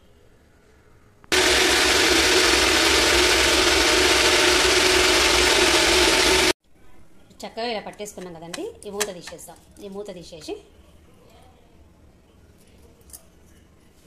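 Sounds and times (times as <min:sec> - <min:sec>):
mixer grinder whirring: 0:01.3 - 0:06.6.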